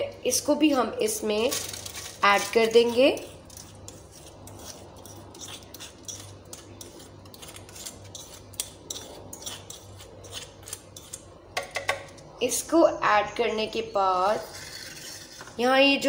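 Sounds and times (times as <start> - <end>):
spoon scraping and clicking on dishes: 1.5 - 12.2.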